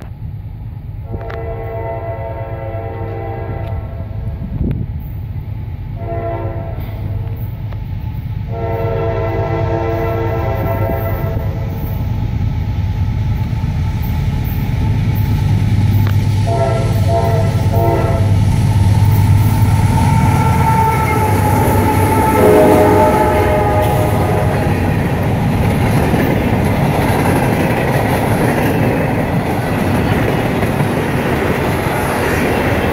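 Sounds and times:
locomotive engine rumbling: 0.0s - 32.9s
locomotive air horn: 1.0s - 4.2s, 6.0s - 7.4s, 8.5s - 12.0s, 16.4s - 18.5s, 19.4s - 24.9s.

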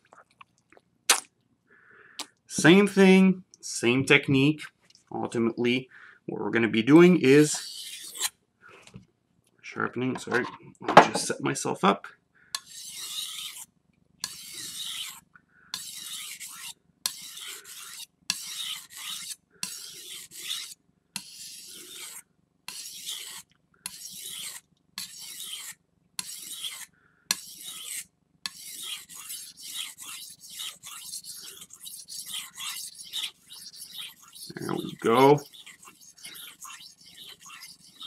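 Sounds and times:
knife scraping on whetstone: 7.5s - 8.3s, 12.6s - 15.2s, 15.8s - 38.0s.

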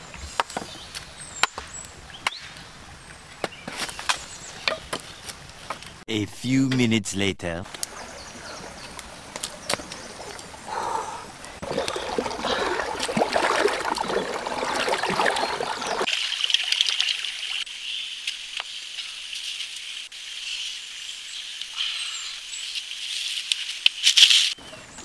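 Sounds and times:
river water rushing over rocks: 11.4s - 16.1s.

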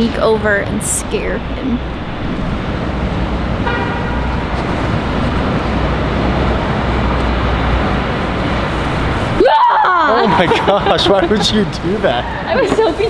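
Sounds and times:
steady noisy rush: 0.0s - 13.0s
car horn toot: 3.6s - 4.4s.

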